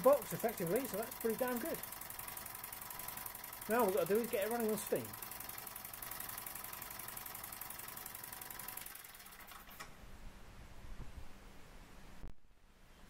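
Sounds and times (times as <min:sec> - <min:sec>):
model steam engine clattering: 0:00.0 - 0:06.7
small compressor humming: 0:00.0 - 0:09.9.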